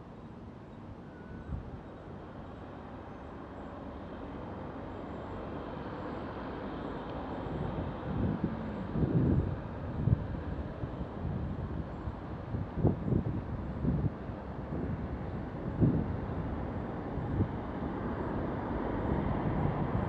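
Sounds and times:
passing road traffic: 1.8 - 20.0
wind rushing over microphone: 7.4 - 20.0.

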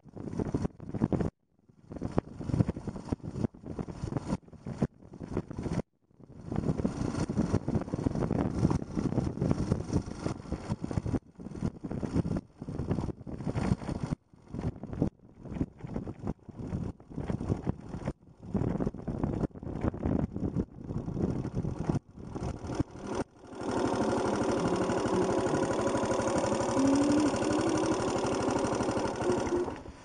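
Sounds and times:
wind noise on microphone: 0.0 - 23.2
motorcycle engine running: 20.9 - 30.0.

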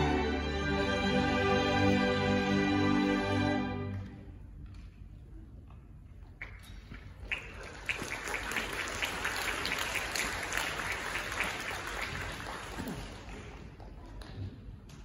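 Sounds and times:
audience applauding: 7.2 - 13.6.

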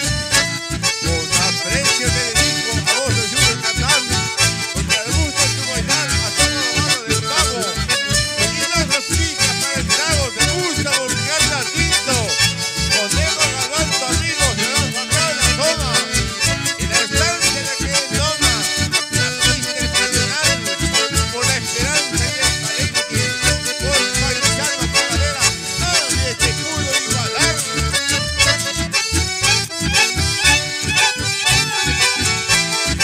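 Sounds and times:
button accordions playing: 0.0 - 33.0
guitar: 0.0 - 33.0
steady bass beat: 0.0 - 33.0.

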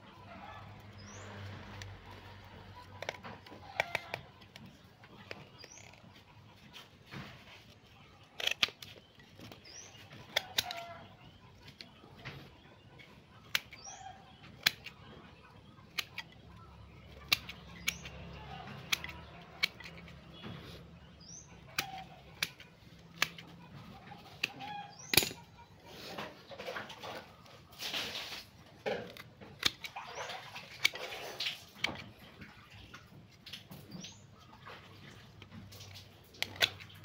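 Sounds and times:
pruning shears snipping roots: 8.2 - 12.4, 13.3 - 25.6, 28.1 - 32.2.

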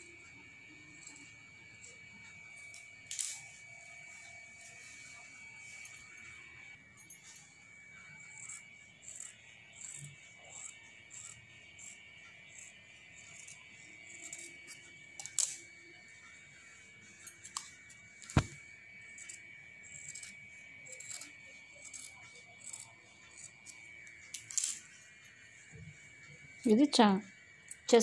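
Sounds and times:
scissors snipping cloth: 17.4 - 18.6.

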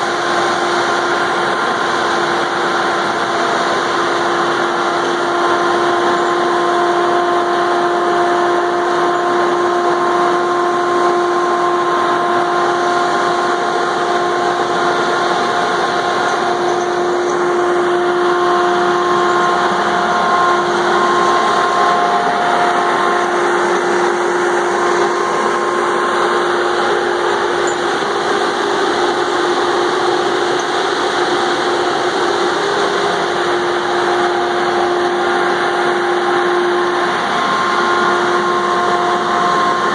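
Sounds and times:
constant whine: 0.0 - 39.9
diesel engine running: 0.0 - 39.9.

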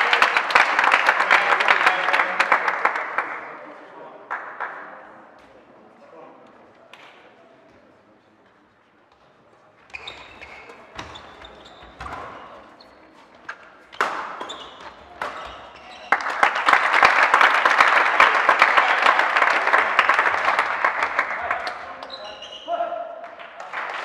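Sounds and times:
loud clapping: 0.0 - 5.1, 14.0 - 14.4, 15.2 - 22.2, 23.2 - 24.0
shoes squeaking on court floor: 9.1 - 16.4, 22.0 - 22.8
racket hitting shuttlecock: 13.4 - 15.7.

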